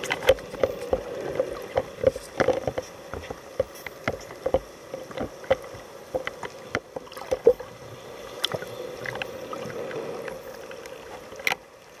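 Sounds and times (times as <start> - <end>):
underwater clicks and knocks: 0.0 - 7.7
underwater low hum: 0.0 - 12.0.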